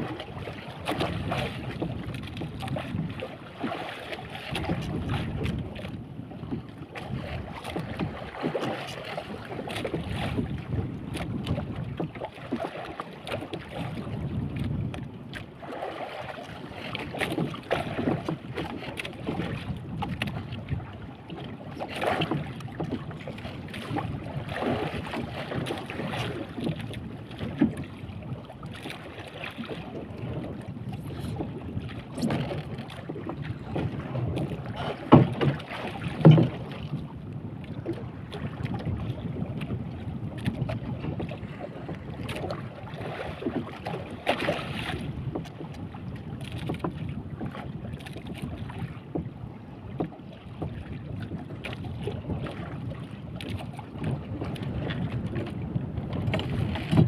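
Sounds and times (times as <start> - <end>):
water slapping boat hull: 0.0 - 57.0
wind buffeting microphone: 4.4 - 12.2, 13.6 - 15.4, 29.6 - 57.0.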